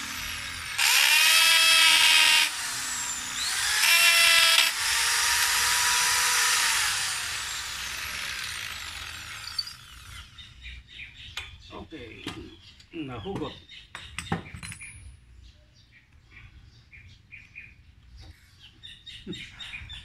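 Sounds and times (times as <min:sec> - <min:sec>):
electric drill boring through wood: 0:00.0 - 0:10.4.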